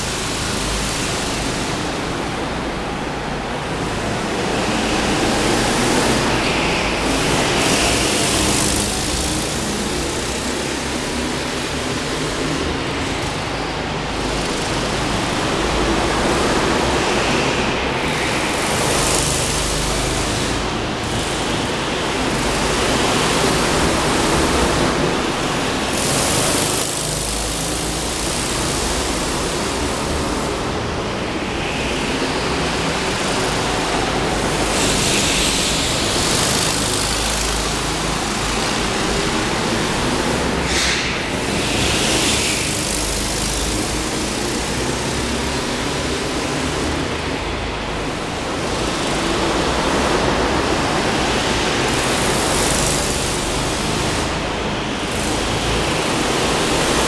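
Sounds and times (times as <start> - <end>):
go-kart engines running: 0.0 - 57.0.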